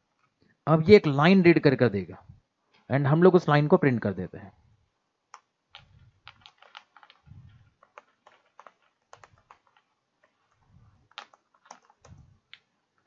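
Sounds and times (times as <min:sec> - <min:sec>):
typing on a keyboard: 0:05.3 - 0:12.7.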